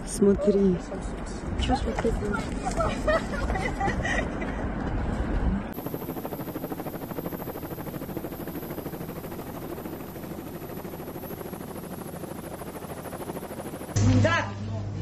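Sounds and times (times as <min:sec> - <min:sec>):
helicopter rotors chopping: 0:04.6 - 0:14.6.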